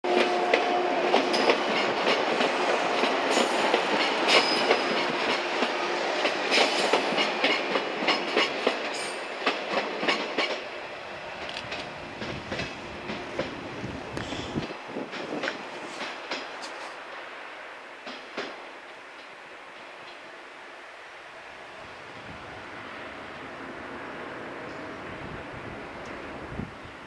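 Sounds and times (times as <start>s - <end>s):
train wheels clicking over rail joints: 0.1s - 10.7s, 11.4s - 17.2s, 18.0s - 20.2s.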